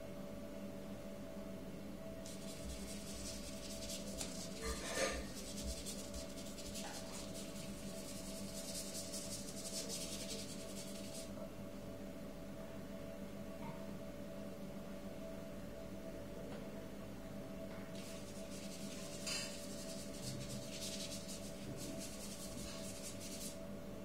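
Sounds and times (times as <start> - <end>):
paintbrush scrubbing paper: 2.3 - 11.3, 18.0 - 23.6.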